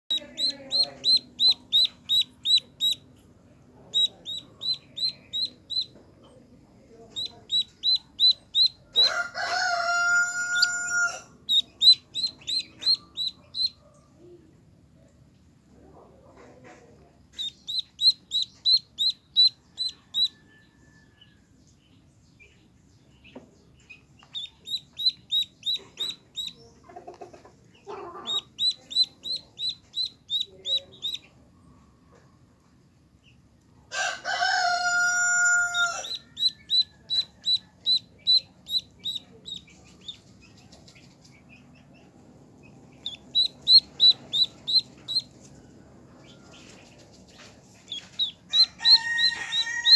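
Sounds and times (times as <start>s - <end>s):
duckling peeping: 0.1s - 14.0s, 17.2s - 20.4s, 22.4s - 31.4s, 34.8s - 49.9s
rooster crowing: 8.9s - 11.4s, 19.9s - 21.2s, 33.9s - 36.8s, 48.5s - 49.9s.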